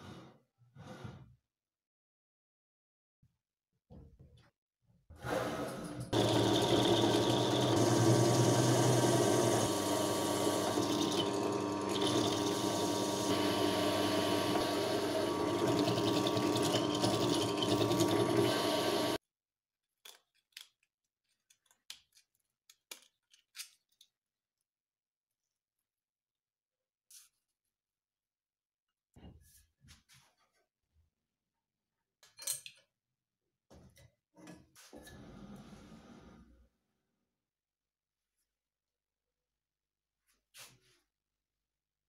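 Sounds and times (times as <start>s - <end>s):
drill press running: 6.1s - 19.2s.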